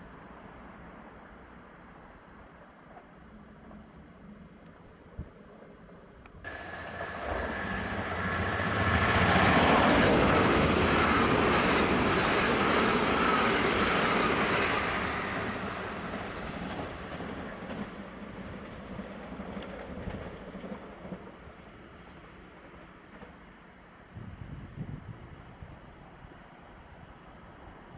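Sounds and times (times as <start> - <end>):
electric train passing at speed: 5.2 - 27.9
train whine dropping in pitch: 6.5 - 16.8.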